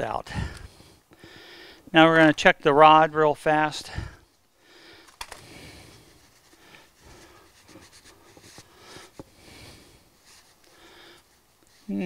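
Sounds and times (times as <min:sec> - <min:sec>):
rag wiping rustling: 0:06.0 - 0:09.2, 0:10.0 - 0:12.0.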